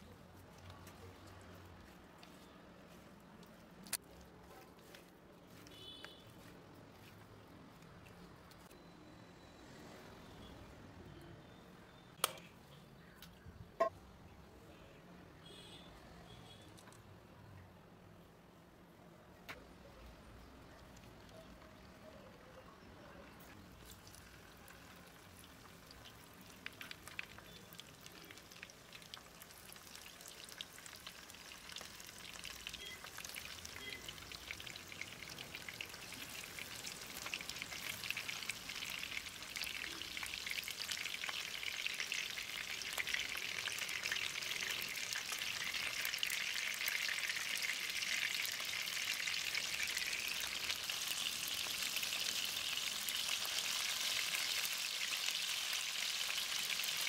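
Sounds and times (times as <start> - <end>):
fish sizzling in hot oil: 23.6 - 57.0.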